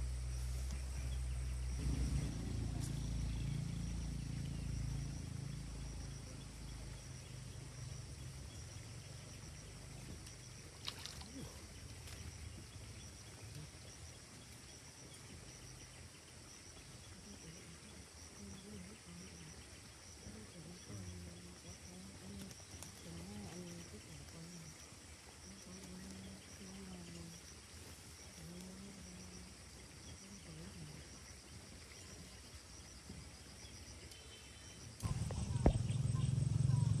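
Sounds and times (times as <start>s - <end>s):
low motor hum: 0.0s - 24.8s, 35.0s - 37.0s
insects droning: 0.0s - 37.0s.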